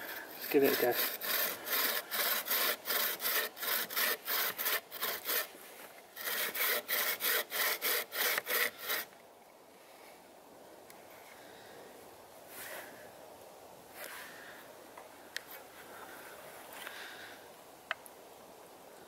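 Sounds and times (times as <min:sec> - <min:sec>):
bow saw cutting wood: 0:00.0 - 0:05.6, 0:06.2 - 0:09.1.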